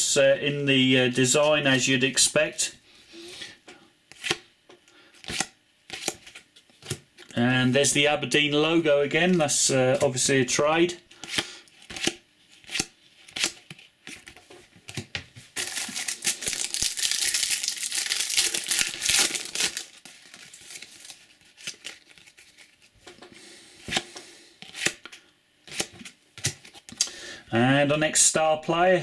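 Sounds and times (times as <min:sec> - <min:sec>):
cards clicking and rustling: 0:11.2 - 0:27.1
foil pack tearing and crinkling: 0:15.6 - 0:22.9.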